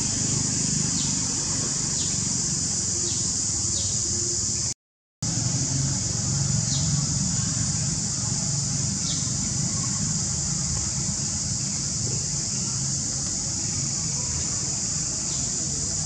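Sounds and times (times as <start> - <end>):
high-pitched hiss: 0.0 - 16.0.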